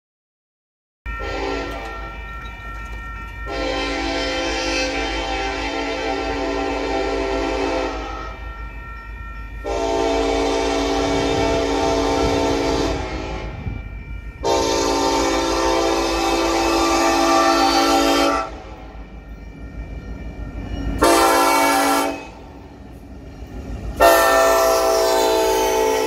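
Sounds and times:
low train rumble: 0:01.1 - 0:26.0
locomotive air horn blasts: 0:01.2 - 0:02.1, 0:03.5 - 0:08.4, 0:09.6 - 0:13.6, 0:14.4 - 0:18.8, 0:21.0 - 0:22.5, 0:24.0 - 0:26.0.

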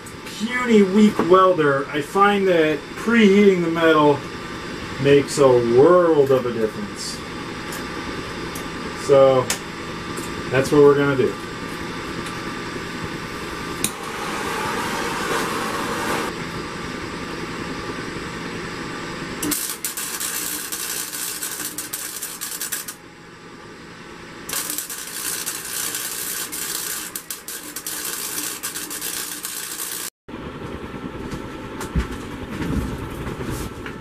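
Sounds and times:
welding arc crackling: 0:19.4 - 0:23.0, 0:24.4 - 0:30.1.

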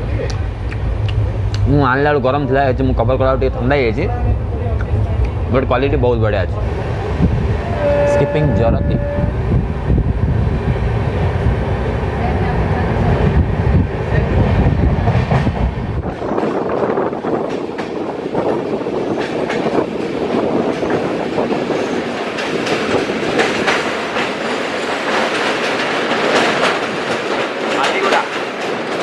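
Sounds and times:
deep train rumble: 0:00.0 - 0:29.0
train wheels clattering over rail joints: 0:14.9 - 0:29.0.

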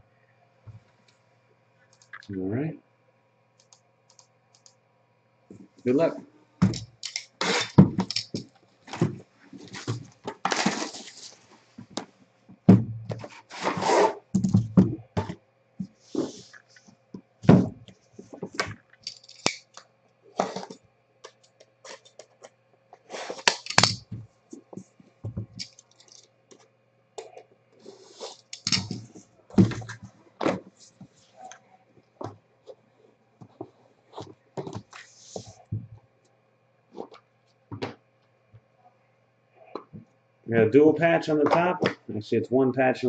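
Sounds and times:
cardboard rustling and scraping: 0:08.8 - 0:11.9, 0:13.1 - 0:14.2, 0:15.2 - 0:16.9, 0:20.4 - 0:20.8, 0:21.8 - 0:23.8.

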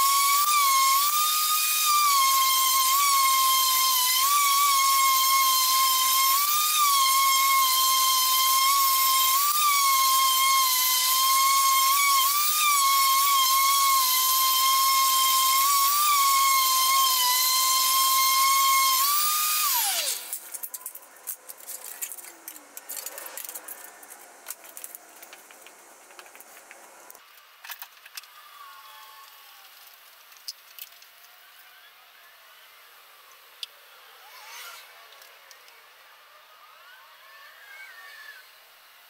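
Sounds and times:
power tool motor whining: 0:00.0 - 0:20.4.

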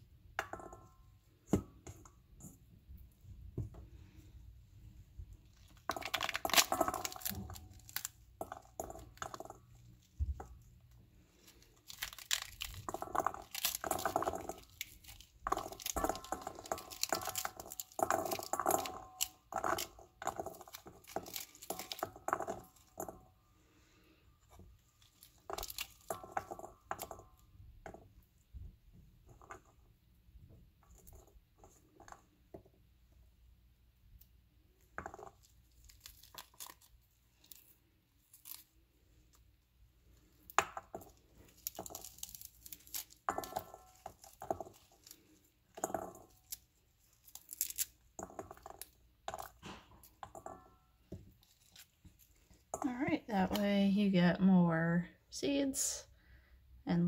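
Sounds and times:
fruit rind tearing by hand: 0:11.4 - 0:22.1, 0:35.2 - 0:39.4, 0:40.5 - 0:50.2.

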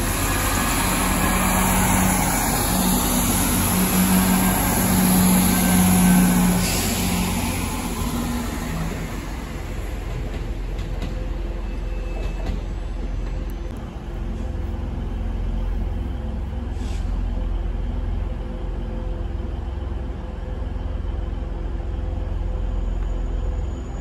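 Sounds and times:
diesel locomotive engine rumble: 0:00.0 - 0:24.0
train wheel clicks and squeaks: 0:09.7 - 0:13.8.

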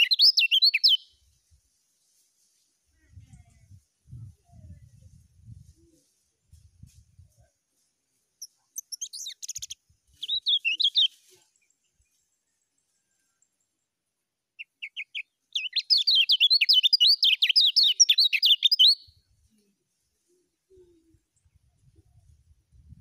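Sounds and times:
bird twittering and chirping: 0:00.0 - 0:01.0, 0:08.4 - 0:13.7, 0:14.6 - 0:19.0.

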